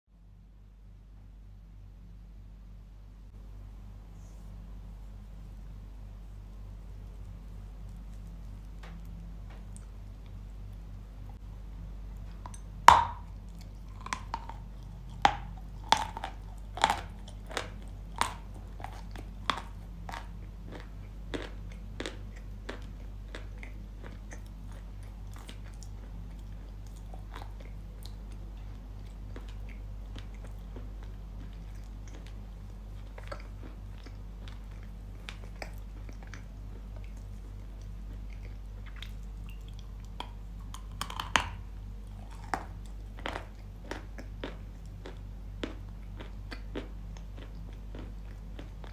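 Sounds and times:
crunchy chewing: 6.2 - 11.4, 12.1 - 48.9.

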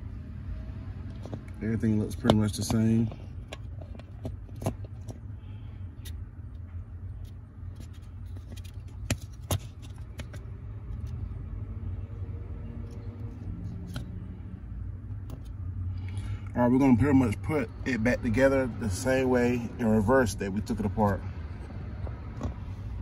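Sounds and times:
low background rumble: 0.0 - 23.0.

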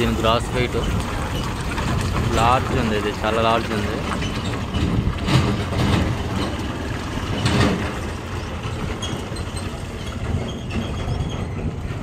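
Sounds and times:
truck diesel engine rumbling: 0.0 - 12.0.

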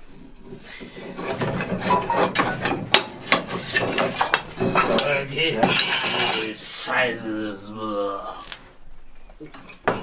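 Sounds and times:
scraping on workbench: 0.7 - 6.5
wooden pieces and tools clattering: 0.9 - 6.4.

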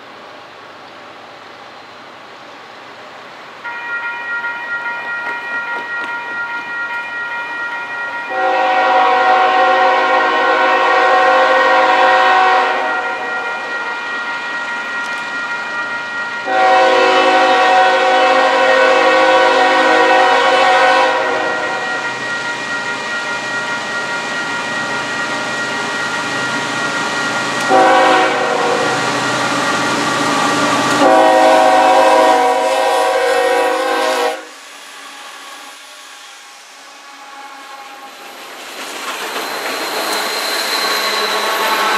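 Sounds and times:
locomotive air horn blasts: 8.3 - 13.7, 16.4 - 22.0, 27.6 - 29.0, 31.0 - 34.6.

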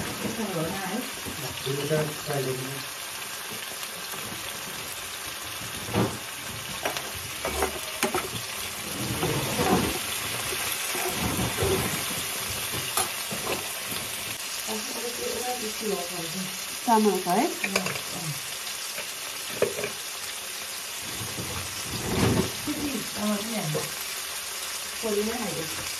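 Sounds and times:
vegetables sizzling in frying pan: 0.0 - 25.9
knife and spatula scraping pan: 6.7 - 14.0.

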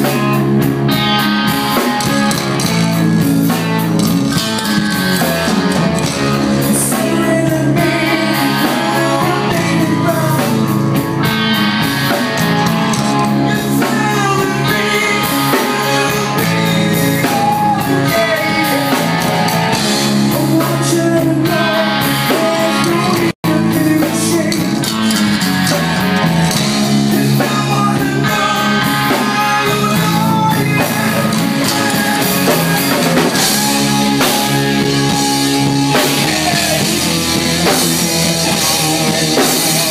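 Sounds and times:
drum kit: 0.0 - 39.9
electric guitar: 0.0 - 39.9
person singing through pa: 6.5 - 11.0, 12.4 - 25.2, 27.0 - 39.9.

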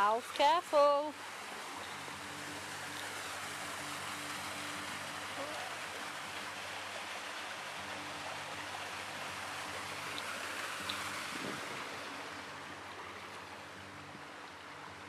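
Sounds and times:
stream and waterfall rushing: 0.0 - 15.0.

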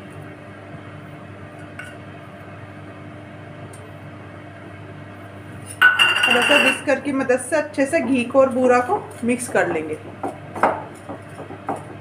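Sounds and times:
steel bowl clinking on glass bowl: 5.8 - 6.9.

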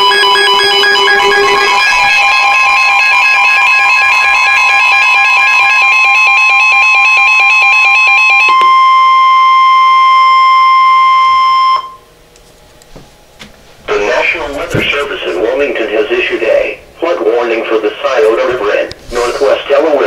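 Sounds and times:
rapid electronic beeps: 0.0 - 8.4
steady warning tone: 0.0 - 20.0.

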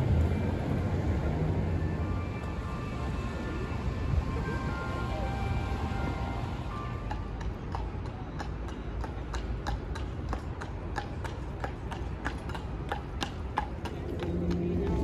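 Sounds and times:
low city rumble: 0.0 - 15.0
hooves clip-clopping on wet road: 6.8 - 15.0.

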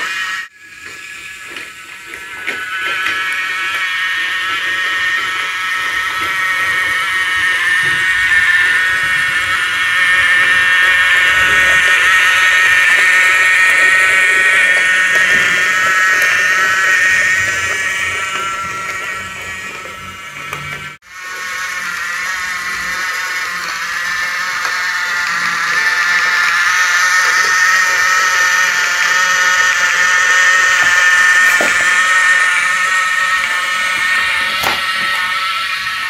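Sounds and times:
toy train motor whining: 0.0 - 36.0.

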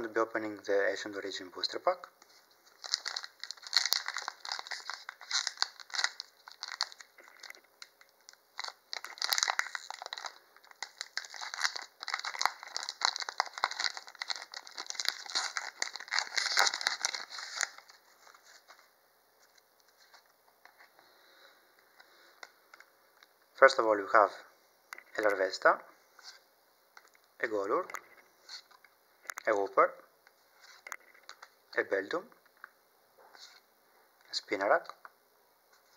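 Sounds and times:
foil wrapper tearing and crinkling: 2.7 - 18.4.

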